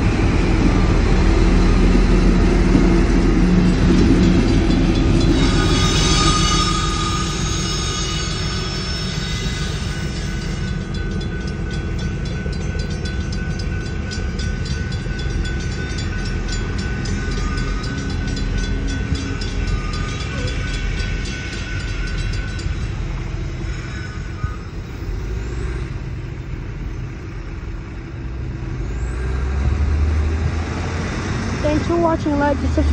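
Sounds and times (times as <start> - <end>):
train rumble: 0.0 - 32.9
electronic crossing bell dinging: 3.7 - 25.8.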